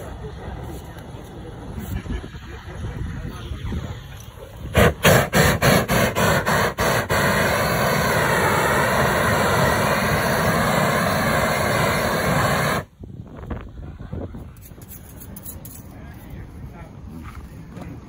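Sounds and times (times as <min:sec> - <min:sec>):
propane torch roaring: 0:00.0 - 0:13.0.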